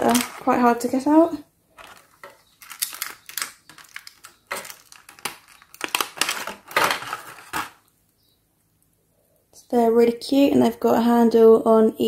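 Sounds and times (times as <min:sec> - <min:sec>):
plastic blister tray crinkling: 0:00.0 - 0:07.9.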